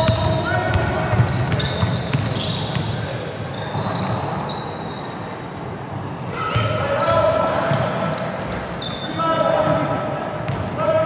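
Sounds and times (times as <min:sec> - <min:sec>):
basketball bouncing: 0:00.0 - 0:02.8
shoes squeaking on court: 0:00.0 - 0:10.2.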